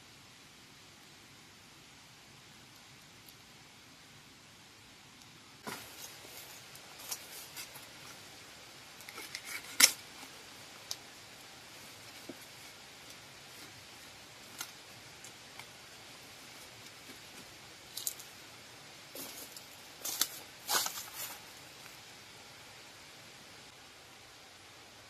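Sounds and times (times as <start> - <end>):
faint hiss: 0.0 - 25.0
dry leaves rustling and crackling: 5.6 - 8.4, 9.0 - 18.4, 19.1 - 22.0.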